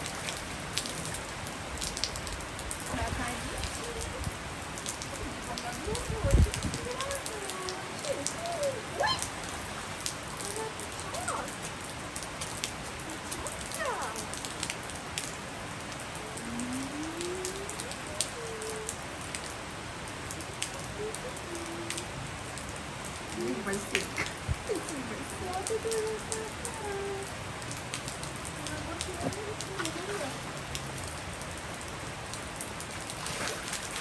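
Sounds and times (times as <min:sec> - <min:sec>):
rain falling on tiles: 0:00.0 - 0:34.0.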